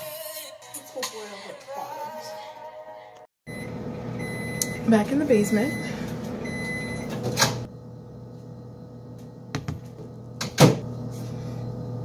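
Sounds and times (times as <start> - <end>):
microwave beeping: 3.5 - 12.0
microwave running: 3.5 - 12.0.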